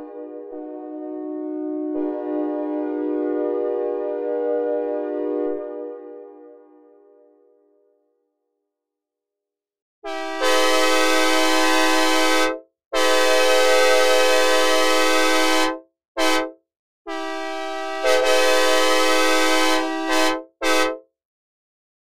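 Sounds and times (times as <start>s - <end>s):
synthesized train horn blasts: 0.0s - 7.8s, 10.0s - 21.0s.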